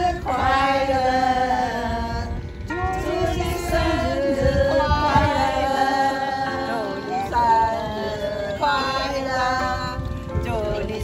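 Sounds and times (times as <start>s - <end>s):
women singing in unison: 0.0s - 11.0s.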